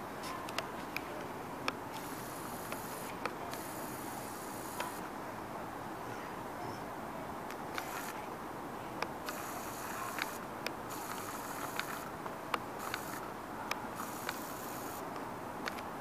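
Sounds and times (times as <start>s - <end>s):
outdoor background noise: 0.0s - 16.0s
sharp ticks: 9.0s - 13.3s, 14.0s - 15.0s.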